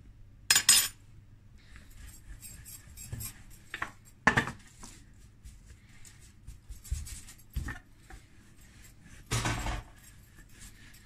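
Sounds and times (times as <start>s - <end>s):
dishes and utensils clattering: 9.3s - 9.9s.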